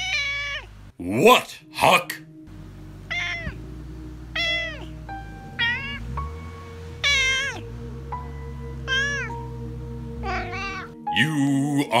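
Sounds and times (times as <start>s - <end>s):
cat meowing: 0.0s - 0.7s, 3.1s - 3.6s, 4.3s - 6.0s, 7.0s - 7.6s, 8.8s - 9.4s, 10.2s - 11.0s
background music with held tones: 0.9s - 12.0s.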